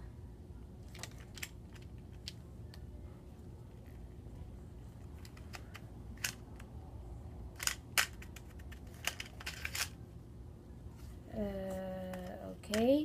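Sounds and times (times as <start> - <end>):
plastic toy parts clicking: 0.8 - 2.8, 5.0 - 6.7, 7.6 - 10.0.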